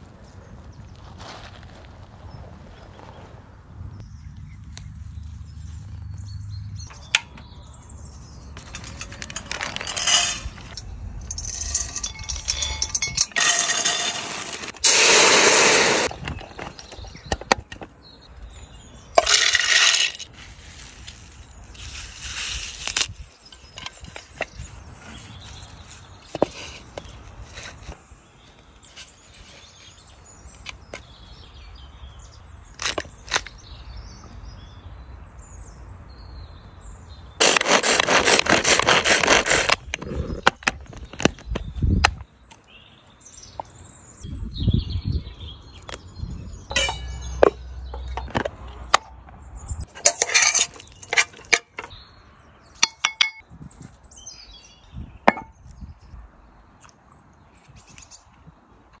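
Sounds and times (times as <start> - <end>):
birds chirping: 3.9 - 20.3, 39.3 - 58.9
food chopper whirring rattle: 13.5 - 16.1.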